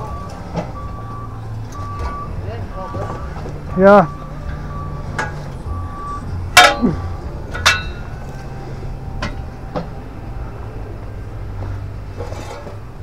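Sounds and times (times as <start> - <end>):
low engine hum: 0.0 - 13.0
sharp metal clinks: 6.6 - 8.2.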